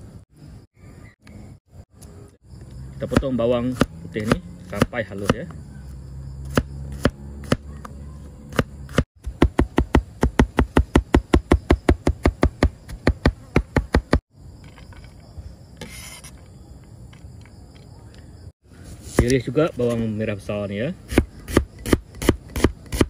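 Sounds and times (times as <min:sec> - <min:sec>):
cleaver chopping on cutting board: 0:03.1 - 0:05.5, 0:06.5 - 0:07.7.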